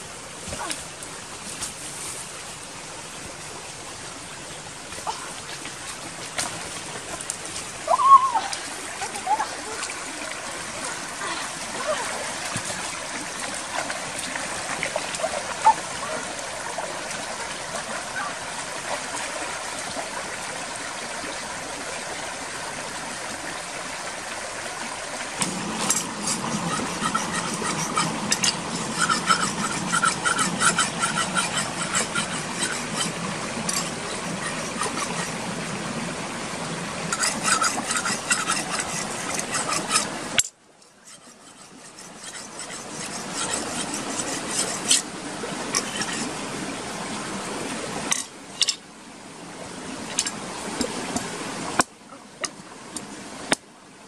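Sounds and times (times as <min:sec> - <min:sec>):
stream flowing over rocks: 0:00.0 - 0:54.0
splashes of people wading: 0:04.9 - 0:20.1, 0:29.0 - 0:35.3, 0:37.2 - 0:40.0
hands scraping coconuts: 0:25.4 - 0:35.3, 0:37.1 - 0:40.2, 0:41.1 - 0:45.1.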